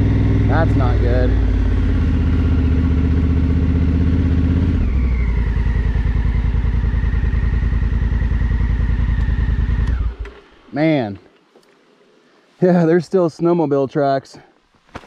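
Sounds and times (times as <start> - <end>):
motorcycle engine idling: 0.0 - 10.7.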